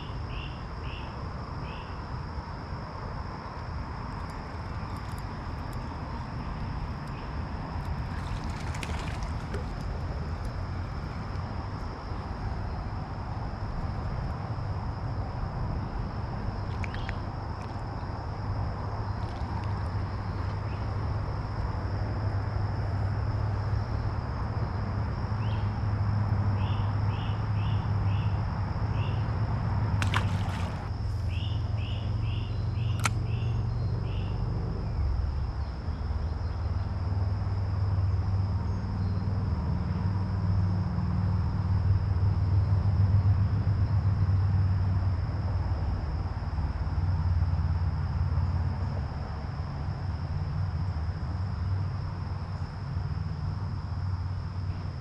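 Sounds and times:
constant low rumble: 0.0 - 55.0
sharp clicks: 32.9 - 33.3.

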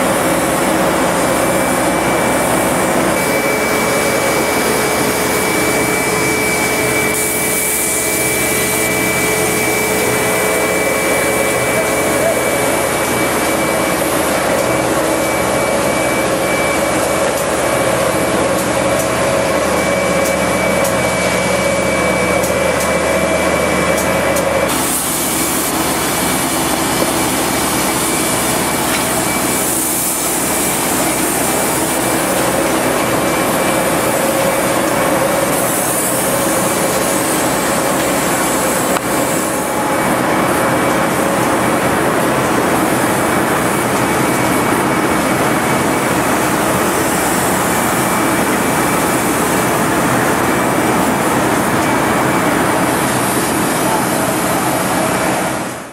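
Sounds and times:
pump running: 0.0 - 55.9
spray nozzle hissing: 2.3 - 12.5, 24.7 - 28.7, 35.4 - 39.8.

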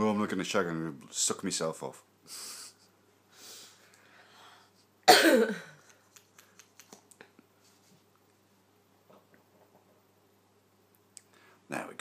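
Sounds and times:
person coughing: 5.1 - 5.8.

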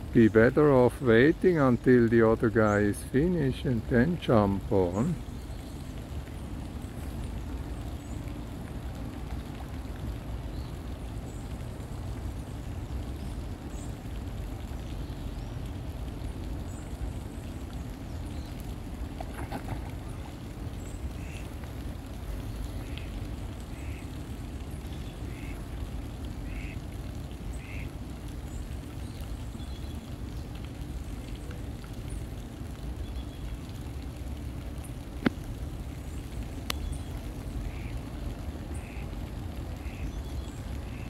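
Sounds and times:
low background rumble: 0.0 - 41.0
ducks quacking: 21.2 - 21.5, 23.7 - 24.1, 26.4 - 26.8.

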